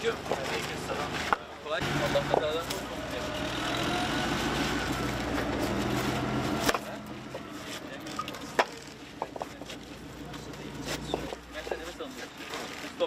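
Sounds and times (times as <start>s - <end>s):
paving stones clacking: 0.0s - 1.5s, 7.6s - 13.0s
vehicle engine running: 1.8s - 7.6s.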